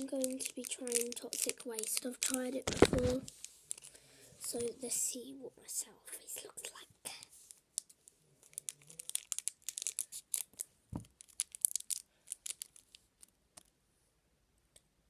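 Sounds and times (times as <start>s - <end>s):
plastic wrapper crinkling: 0.0s - 4.7s, 6.6s - 13.7s.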